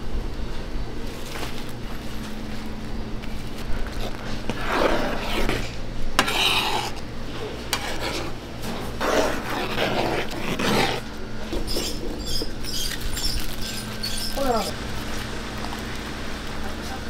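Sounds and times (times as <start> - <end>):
steady low hum: 0.0 - 17.0
metal ladle scraping thick sauce: 4.0 - 7.0, 7.7 - 11.0.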